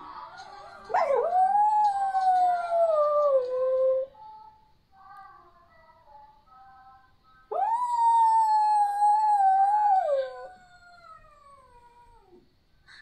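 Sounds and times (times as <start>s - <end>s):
dog howling: 0.8s - 4.1s, 7.5s - 12.4s.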